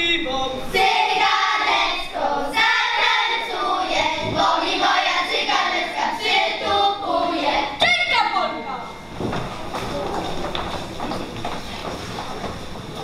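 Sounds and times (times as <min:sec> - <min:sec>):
children singing in unison: 0:00.7 - 0:07.8.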